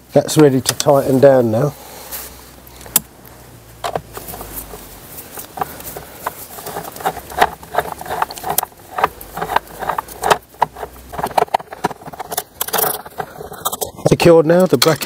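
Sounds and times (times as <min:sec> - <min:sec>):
hand tool clicking on bolt: 0:03.8 - 0:13.9.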